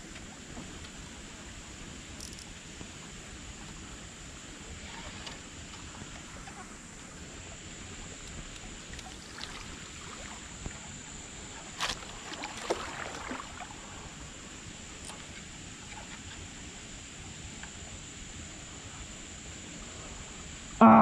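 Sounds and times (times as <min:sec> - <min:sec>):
river water splashing: 0:08.4 - 0:15.1.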